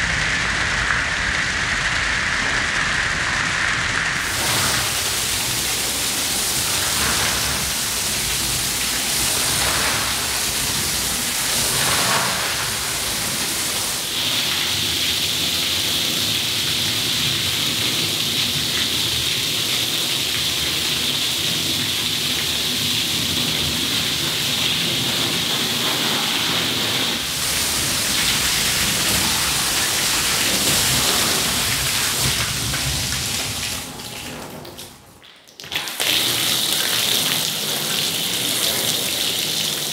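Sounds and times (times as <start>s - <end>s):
water spraying onto wet rug: 0.0s - 39.9s
higher bright hiss: 4.1s - 15.0s, 25.9s - 34.3s.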